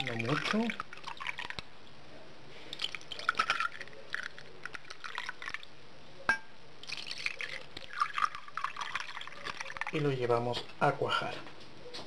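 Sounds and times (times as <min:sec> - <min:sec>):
liquid pouring into glasses: 0:00.0 - 0:01.7, 0:02.7 - 0:05.7, 0:06.8 - 0:10.5
glass clink: 0:06.3 - 0:06.6.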